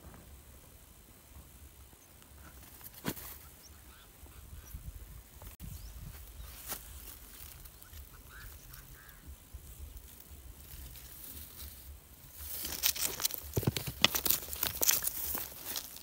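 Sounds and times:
faint bird chirps: 0:03.2 - 0:04.9
stones and soil crunching: 0:06.0 - 0:16.0.

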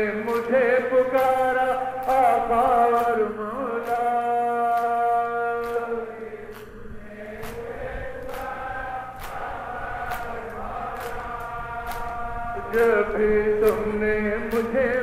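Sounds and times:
men chanting: 0:00.0 - 0:15.0
hands slapping chests: 0:05.6 - 0:05.8, 0:07.4 - 0:08.6, 0:09.2 - 0:12.9.

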